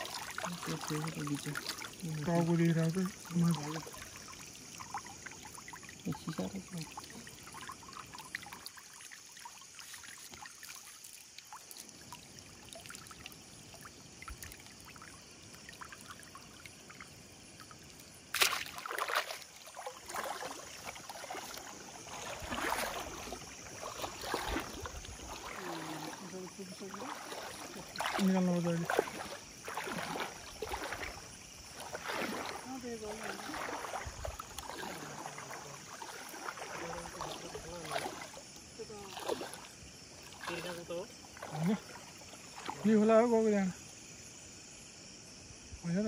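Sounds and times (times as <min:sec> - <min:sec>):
water dripping off net: 0:00.0 - 0:31.2, 0:31.8 - 0:38.4, 0:39.1 - 0:40.7
rustling and splashing: 0:00.0 - 0:43.8.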